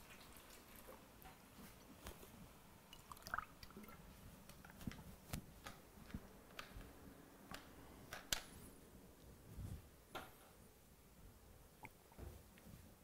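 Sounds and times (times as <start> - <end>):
faint clicks and taps: 4.4 - 8.6.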